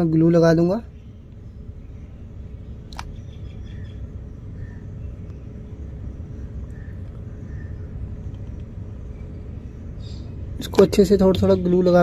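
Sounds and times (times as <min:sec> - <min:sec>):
faint constant hum: 0:00.0 - 0:12.0
low background rumble: 0:00.0 - 0:12.0.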